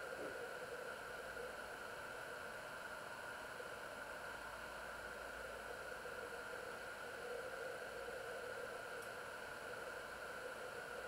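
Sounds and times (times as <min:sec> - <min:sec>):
faint hum: 0:00.0 - 0:11.0
steady hiss: 0:00.0 - 0:11.0
faint tick: 0:09.0 - 0:09.2.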